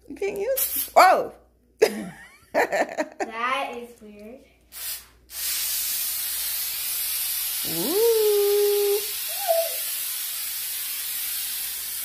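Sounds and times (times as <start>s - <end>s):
aerosol spray hissing: 4.7s - 12.0s.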